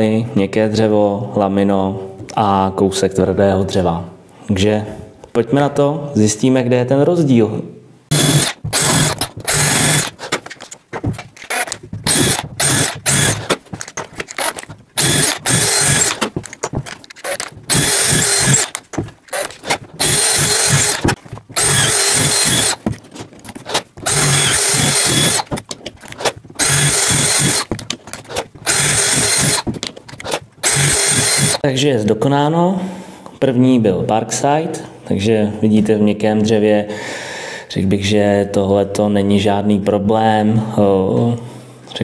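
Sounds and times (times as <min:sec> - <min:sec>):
cordless drill boring into wood: 0:08.1 - 0:10.2, 0:11.4 - 0:22.8, 0:24.0 - 0:25.6, 0:26.6 - 0:31.6.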